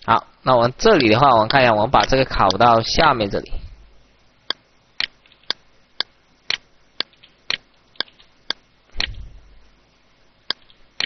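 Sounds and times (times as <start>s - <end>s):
computer mouse clicking: 4.5s - 9.3s.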